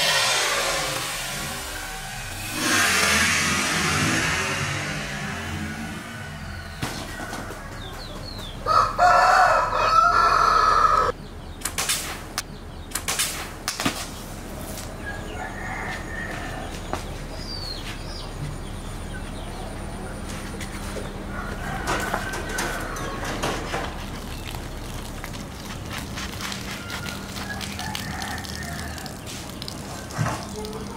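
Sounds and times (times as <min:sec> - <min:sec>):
steady low hum: 0:00.0 - 0:07.8
rooster crowing: 0:06.5 - 0:11.1, 0:15.0 - 0:16.8, 0:21.3 - 0:23.4, 0:26.8 - 0:29.2.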